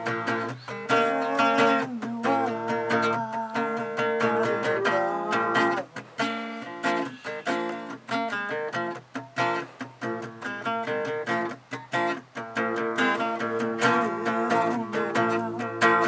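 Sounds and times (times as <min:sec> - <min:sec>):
acoustic guitar blues: 0:00.0 - 0:16.0.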